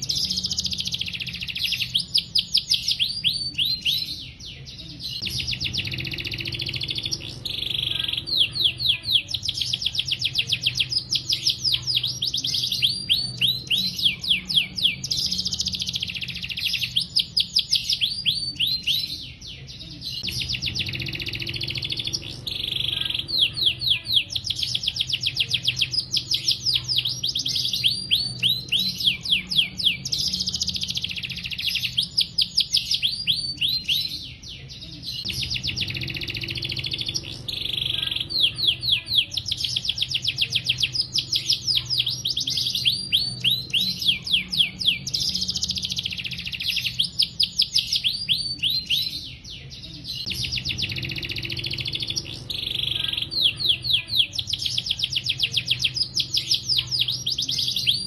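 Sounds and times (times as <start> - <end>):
canary singing trills: 0.0 - 58.0.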